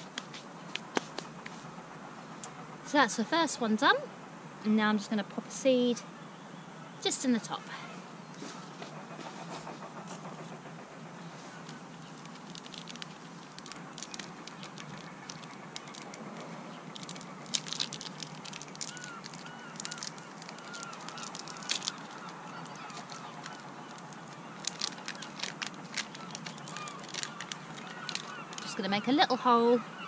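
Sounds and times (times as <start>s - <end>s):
outdoor background noise: 0.0s - 30.0s
birds calling: 6.0s - 30.0s
paper seed packet crinkling: 12.0s - 28.8s.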